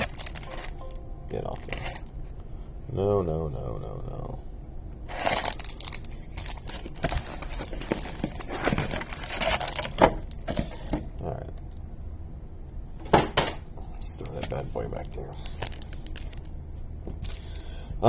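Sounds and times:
foil packs crinkling: 0.0 - 0.8, 1.4 - 2.1, 5.1 - 10.9, 14.1 - 16.5.

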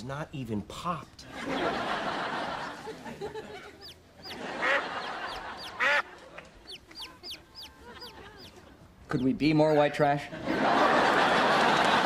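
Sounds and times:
chick peeping: 3.7 - 6.0, 6.6 - 9.5
duck quacking: 3.8 - 6.1, 6.7 - 8.6.

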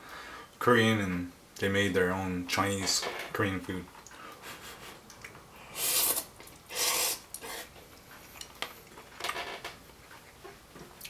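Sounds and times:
person slurping noodles: 5.6 - 7.7.

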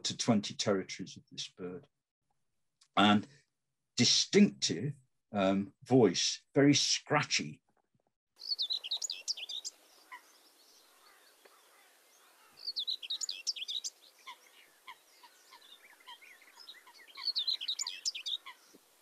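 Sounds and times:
bird singing scratchy phrases: 8.4 - 19.0.

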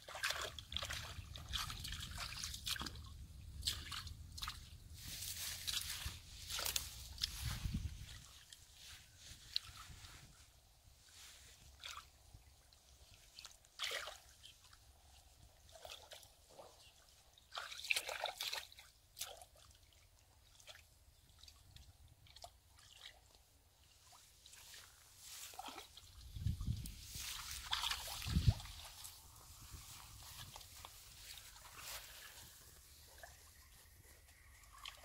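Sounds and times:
hands sloshing through mud: 0.0 - 10.4, 13.0 - 14.6, 15.7 - 19.8, 24.0 - 35.0
small water splashes: 0.0 - 10.4, 11.6 - 14.8, 15.5 - 35.0.

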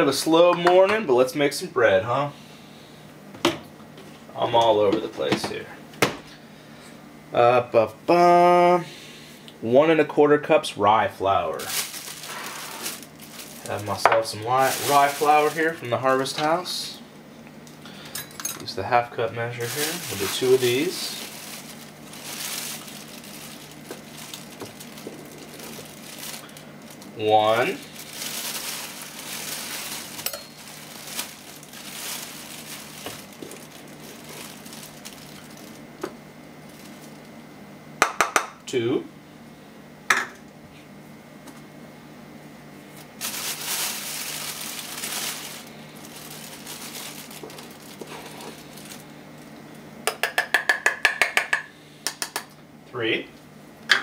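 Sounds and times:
low steady hum: 0.0 - 54.0
plastic bag of flour rustling: 11.5 - 16.9, 19.4 - 36.0, 36.6 - 37.3, 43.1 - 49.1.

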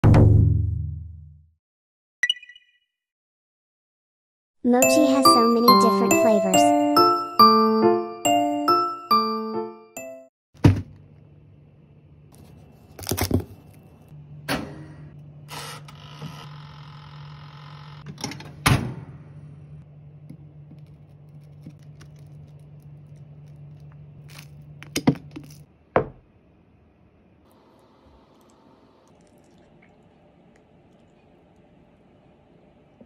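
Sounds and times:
toaster oven humming: 13.9 - 24.8.

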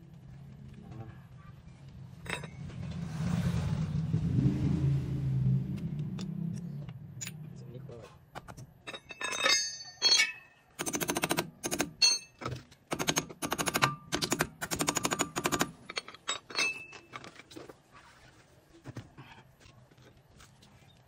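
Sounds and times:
hand tools clinking: 2.2 - 2.7, 8.4 - 10.7, 11.7 - 12.6, 13.7 - 17.7.

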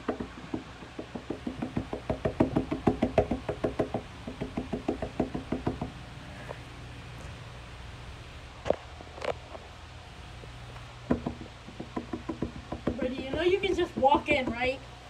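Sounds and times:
rapid knocking on door: 0.0 - 6.2, 11.1 - 14.7.

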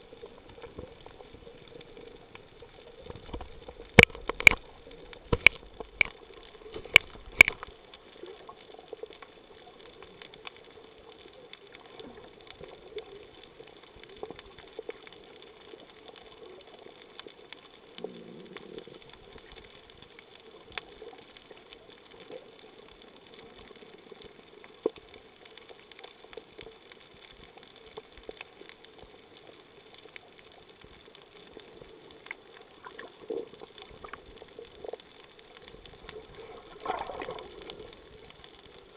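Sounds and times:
muffled underwater hiss: 0.0 - 38.9
sharp underwater clicks: 0.2 - 12.6, 30.0 - 38.9.

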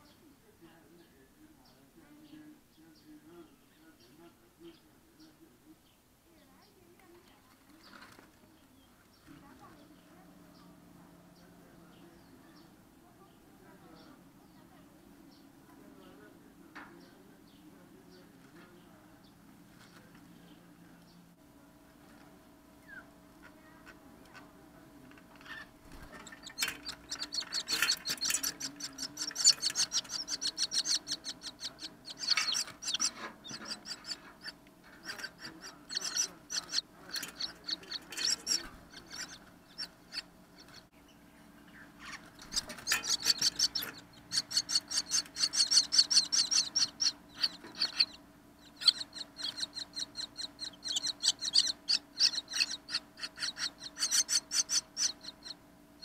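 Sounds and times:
nestlings begging calls: 25.3 - 56.0.

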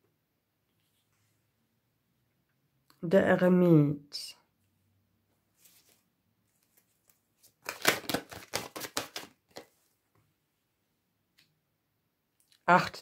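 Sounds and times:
cards being shuffled: 5.6 - 9.9.

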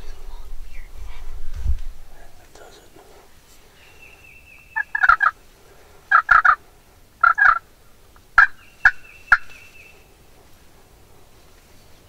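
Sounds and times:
wild turkeys calling: 2.6 - 10.6.

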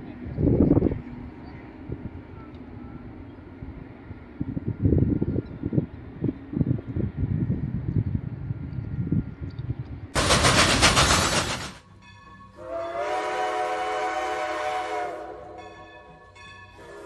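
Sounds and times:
train rumbling: 0.0 - 17.0
loud rushing burst: 10.2 - 11.8
train horn chord: 12.5 - 17.0.

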